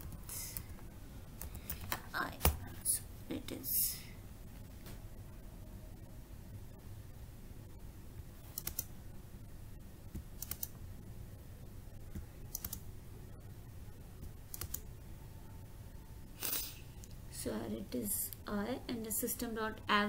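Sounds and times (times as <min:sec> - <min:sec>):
low steady background hum: 0:00.0 - 0:20.0
keyboard keys clicking: 0:12.1 - 0:12.8.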